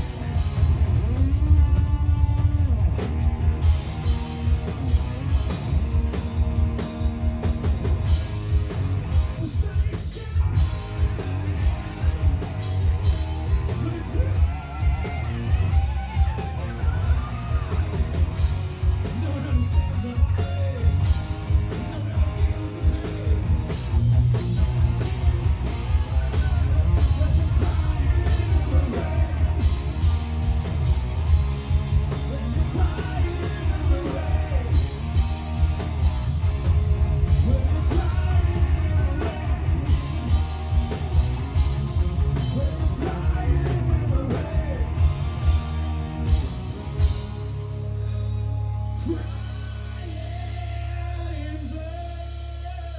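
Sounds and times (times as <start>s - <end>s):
rock band playing: 0.0s - 52.9s
lead vocal singing: 9.2s - 12.2s, 13.5s - 18.4s, 25.3s - 30.2s, 32.0s - 35.5s, 37.3s - 40.8s, 42.3s - 45.2s, 49.0s - 52.9s.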